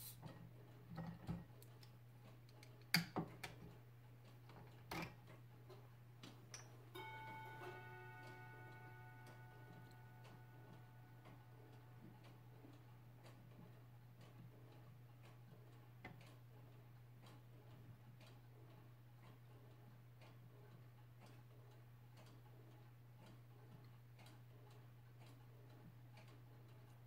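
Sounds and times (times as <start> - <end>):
wooden gears clicking and knocking: 0.3 - 6.9
clear ringing note: 7.0 - 12.5.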